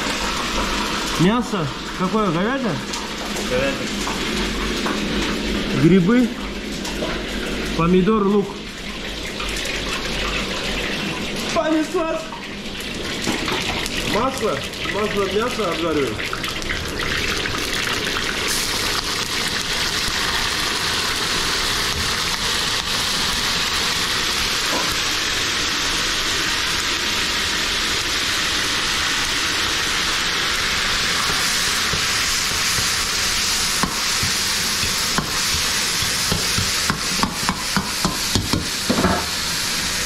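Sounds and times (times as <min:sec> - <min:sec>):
food sizzling in hot oil: 0:00.0 - 0:40.0
utensil clanking against pan: 0:33.7 - 0:39.4.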